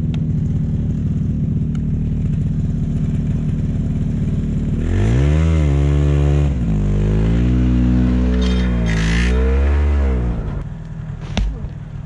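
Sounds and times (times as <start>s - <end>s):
snowmobile engine idling and revving: 0.0s - 12.0s.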